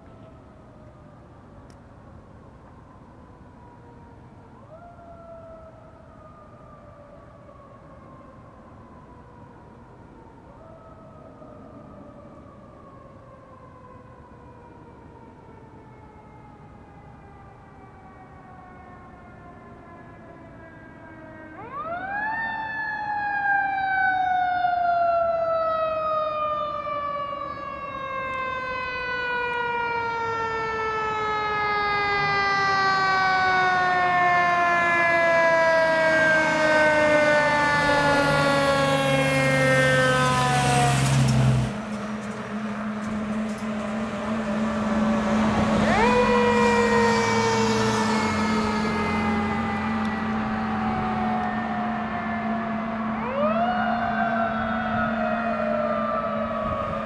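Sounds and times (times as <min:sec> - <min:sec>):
fire truck siren wailing: 0:00.0 - 0:57.0
truck engine rumble: 0:27.8 - 0:57.0.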